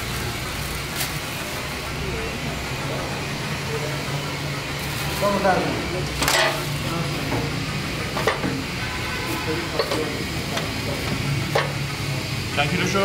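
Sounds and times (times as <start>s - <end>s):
plastic bag crinkling: 0.0s - 1.5s.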